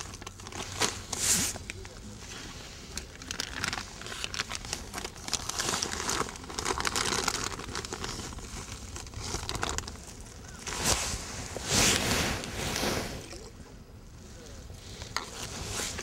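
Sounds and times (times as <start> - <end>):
plastic bag crinkling: 0.0 - 12.5.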